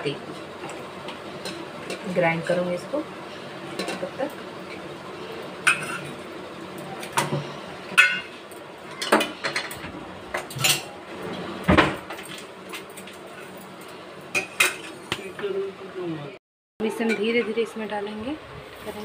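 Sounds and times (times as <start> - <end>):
steel utensils clinking: 5.6 - 6.2, 8.0 - 11.0.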